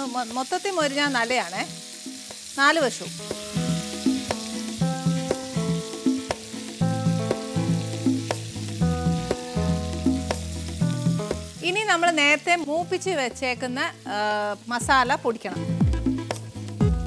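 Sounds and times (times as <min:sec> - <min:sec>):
chicken sizzling in a pan: 0:00.0 - 0:17.0
background music with bass: 0:03.3 - 0:11.6, 0:14.8 - 0:17.0.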